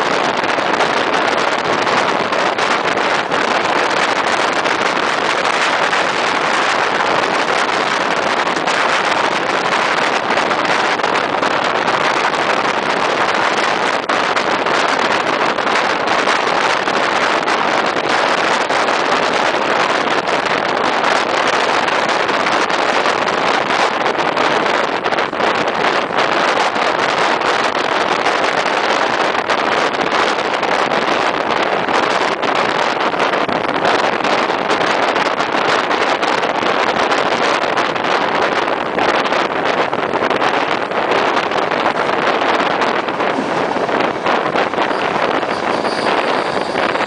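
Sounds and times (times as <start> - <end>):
moving train running noise: 0.0 - 47.0
wind buffeting microphone: 0.0 - 47.0.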